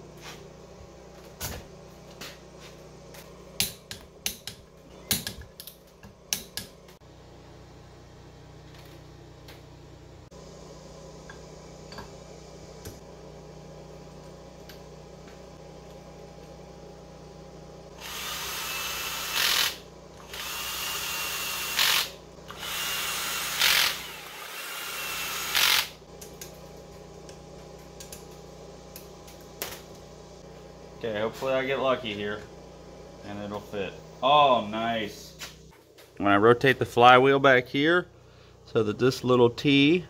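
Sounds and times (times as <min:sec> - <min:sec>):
cordless drill driving bolts: 0:18.0 - 0:26.0.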